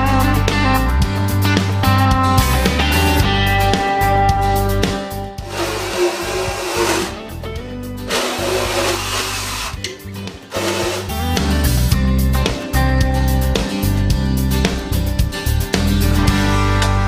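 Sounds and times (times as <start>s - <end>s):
power float rasping teeth: 5.4s - 7.3s, 8.1s - 9.9s, 10.5s - 11.3s.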